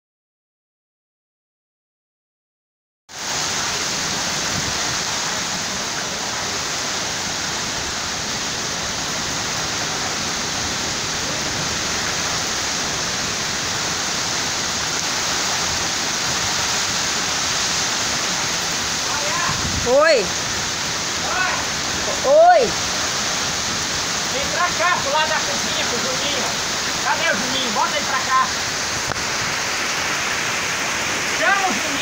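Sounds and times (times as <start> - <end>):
heavy rain hissing: 3.1 - 32.0.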